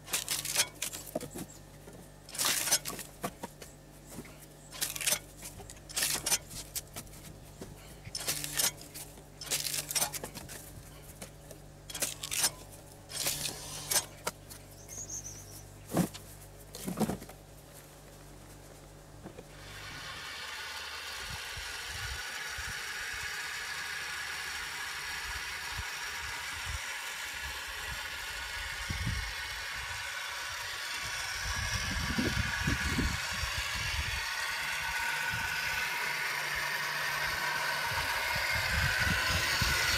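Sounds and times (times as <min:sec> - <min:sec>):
pressure washer whirring: 0:00.0 - 0:01.4, 0:02.2 - 0:15.2, 0:19.5 - 0:39.9
low steady hum: 0:00.0 - 0:39.9
firewood clattering into wheelbarrow: 0:15.9 - 0:17.4.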